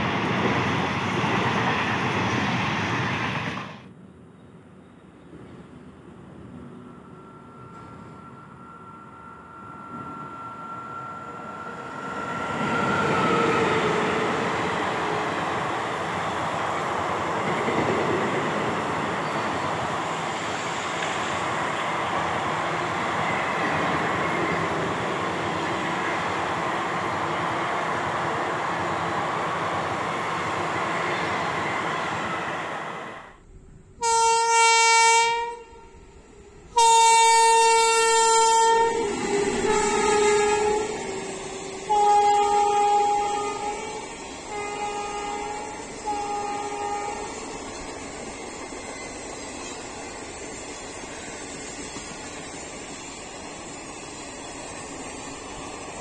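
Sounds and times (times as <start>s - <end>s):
train passing at speed: 0.0s - 56.0s
locomotive horn blasts: 34.0s - 36.0s, 36.7s - 47.4s.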